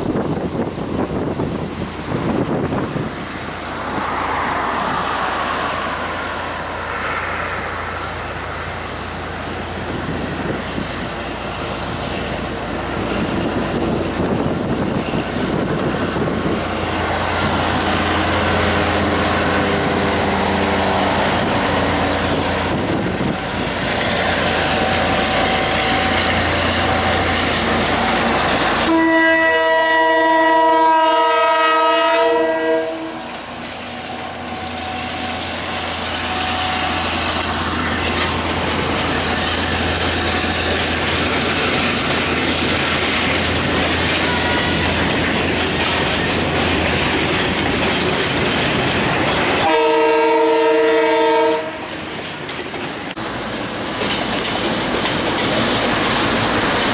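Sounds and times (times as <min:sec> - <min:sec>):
locomotive engine and wheels rumbling: 0:00.0 - 0:56.9
train horn chord: 0:28.8 - 0:33.3, 0:49.6 - 0:51.9.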